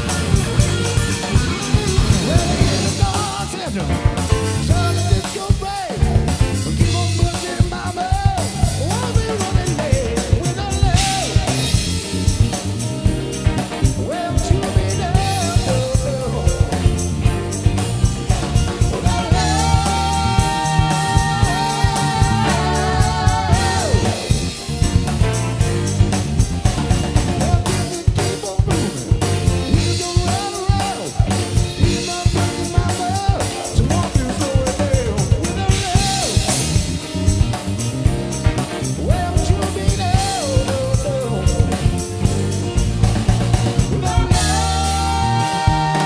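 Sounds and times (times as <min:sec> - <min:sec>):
drum kit beat: 0:00.0 - 0:46.0
electric piano: 0:00.0 - 0:46.0
melodic lead line: 0:00.0 - 0:46.0.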